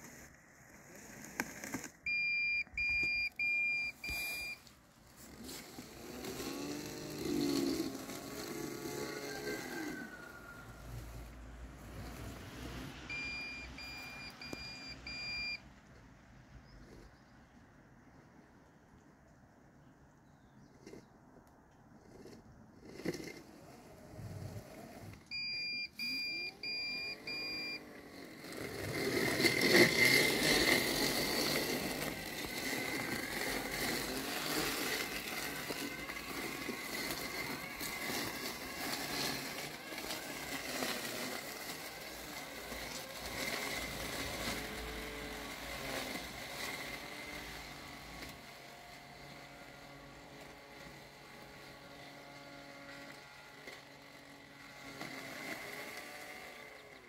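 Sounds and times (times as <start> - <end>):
mower cutting wet weeds: 0.0 - 15.6, 21.9 - 57.0
robotic mower blade motor: 0.0 - 15.6, 20.6 - 57.0
short beeps: 2.1 - 4.6, 13.1 - 15.6, 25.3 - 27.8.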